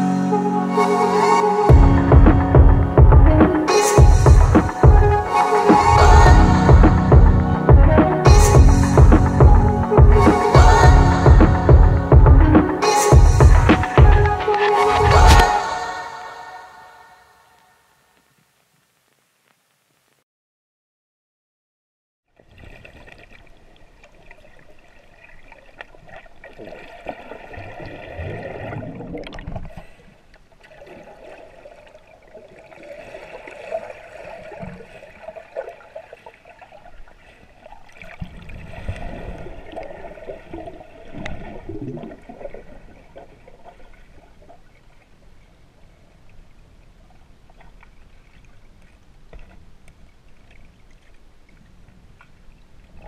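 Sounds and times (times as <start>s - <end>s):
water splashing and sloshing: 22.3s - 53.0s.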